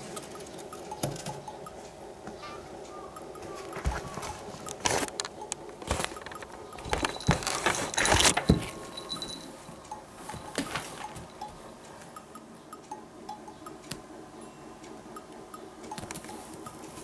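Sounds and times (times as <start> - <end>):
collar clinking: 3.4 - 11.5.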